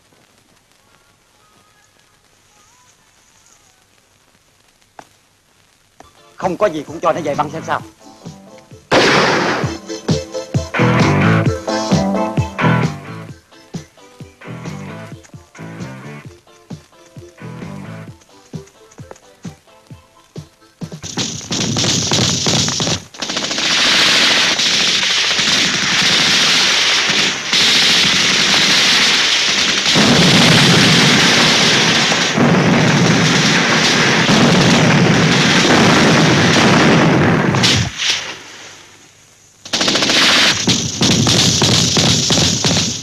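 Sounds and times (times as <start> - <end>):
machine-gun and rifle fire: 8.9 - 9.8, 21.0 - 38.5, 39.6 - 43.0.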